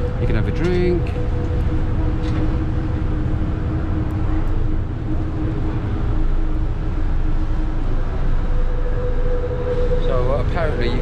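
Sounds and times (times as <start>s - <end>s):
boat engine deep rumble: 0.0s - 11.0s
low hum: 0.0s - 11.0s.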